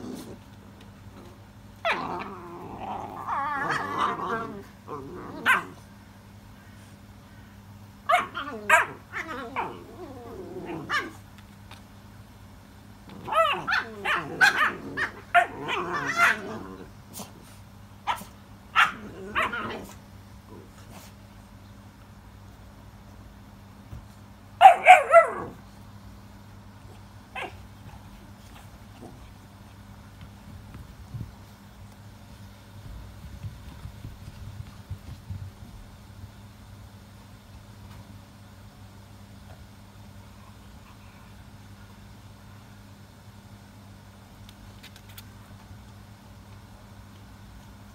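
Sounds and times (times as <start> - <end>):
puppy barking: 5.4 - 5.8, 8.1 - 9.8, 13.3 - 16.5, 18.1 - 19.9, 24.6 - 25.6, 27.4 - 27.6
puppies barking and yelping: 13.2 - 16.4.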